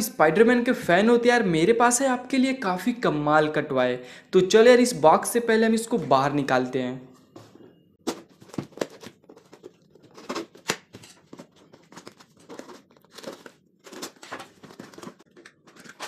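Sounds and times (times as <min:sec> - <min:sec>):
tape tearing: 0:08.6 - 0:16.0.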